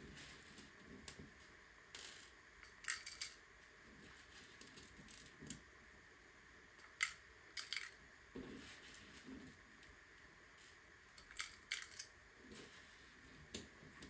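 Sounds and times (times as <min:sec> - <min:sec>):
plastic bricks clicking: 0:02.0 - 0:03.4, 0:06.8 - 0:08.0, 0:11.2 - 0:12.1.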